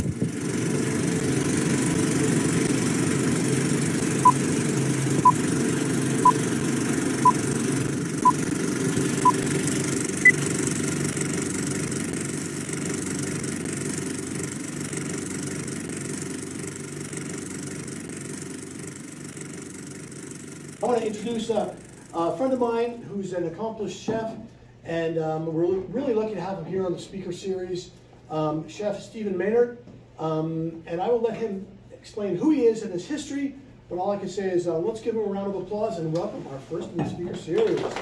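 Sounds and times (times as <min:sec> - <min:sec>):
film projector whirr: 0:00.0 - 0:22.6.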